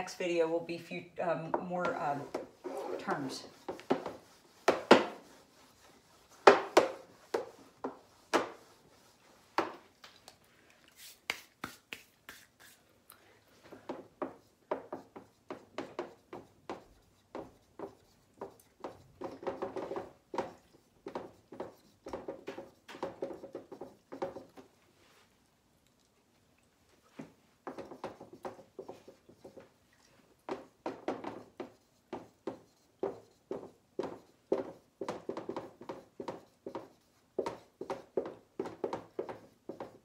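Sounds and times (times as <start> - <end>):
pen scratching on paper: 1.5 - 9.7, 13.9 - 24.6, 27.7 - 29.6, 30.5 - 40.0
pen tapping: 13.9 - 24.6, 30.5 - 40.0.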